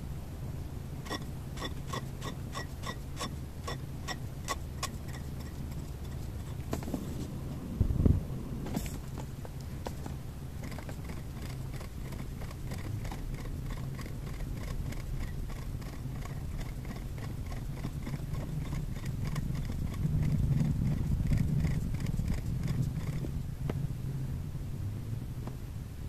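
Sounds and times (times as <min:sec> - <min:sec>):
marker dabbing on paper: 0:01.0 - 0:07.0, 0:09.8 - 0:23.2.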